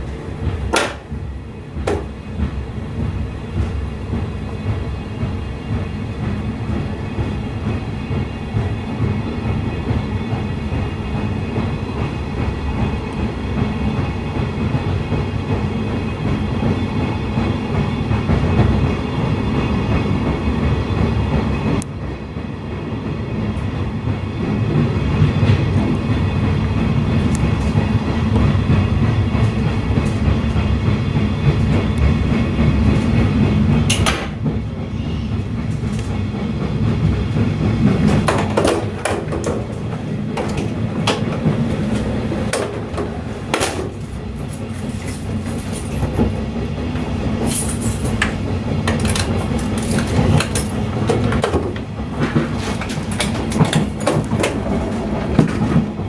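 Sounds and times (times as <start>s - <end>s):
train wheels rumbling: 0.0s - 56.0s
wheels clicking over rail joints: 47.4s - 56.0s.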